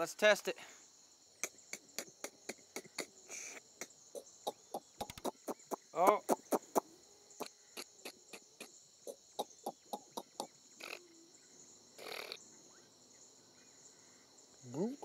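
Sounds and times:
high-pitched insect drone: 0:00.8 - 0:15.0
sharp clicks: 0:05.0 - 0:05.5.

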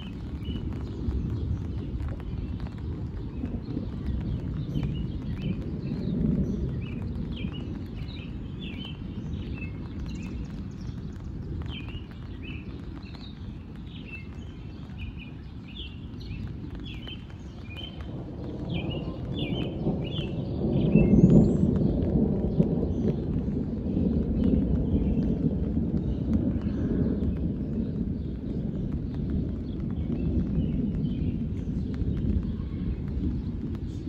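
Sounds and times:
steady low rumble: 0:00.0 - 0:34.0
birds chirping: 0:01.8 - 0:21.9.

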